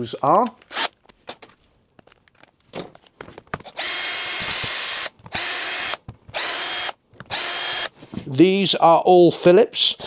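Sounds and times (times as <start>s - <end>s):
cordless drill whining: 0.6s - 1.0s, 3.6s - 8.3s.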